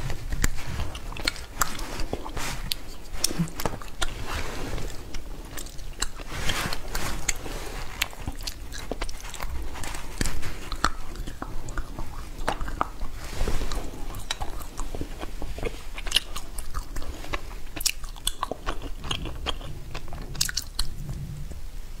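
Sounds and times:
crunchy candy being chewed: 0:00.0 - 0:21.2.

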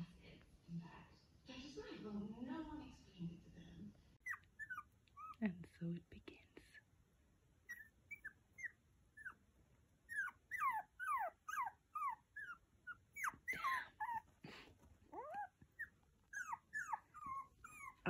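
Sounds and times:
puppy whining: 0:04.2 - 0:05.4, 0:07.6 - 0:09.4, 0:10.0 - 0:18.0.

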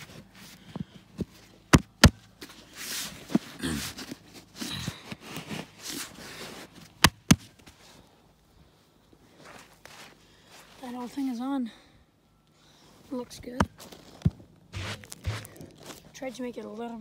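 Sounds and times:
hand scraping dry soil: 0:02.4 - 0:07.8, 0:13.7 - 0:16.4.

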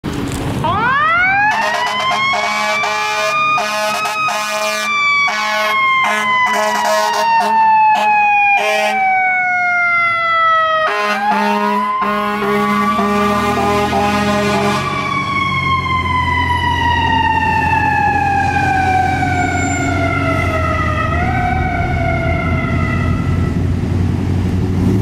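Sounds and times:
fire engine mechanical siren: 0:00.6 - 0:23.9
air horn blasts: 0:01.4 - 0:09.1, 0:10.8 - 0:15.0.

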